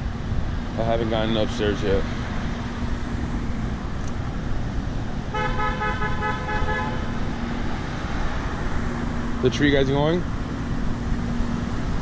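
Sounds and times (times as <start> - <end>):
street traffic noise: 0.0 - 12.0
car horn honk: 5.3 - 7.1.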